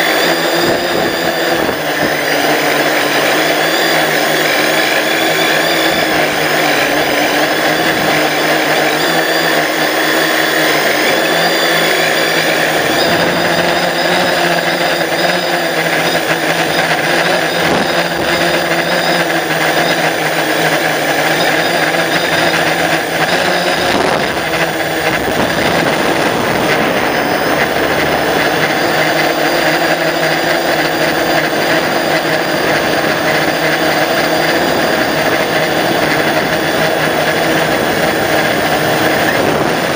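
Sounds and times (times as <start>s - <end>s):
drone propellers buzzing whine: 0.0s - 39.9s.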